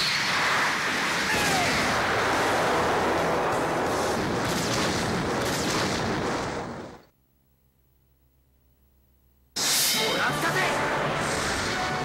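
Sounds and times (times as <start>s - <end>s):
cannon blast explosion: 1.7s - 7.0s.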